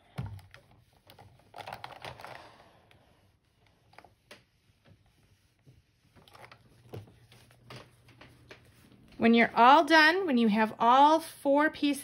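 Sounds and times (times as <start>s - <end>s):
paper and fabric rustling: 0.4s - 9.4s.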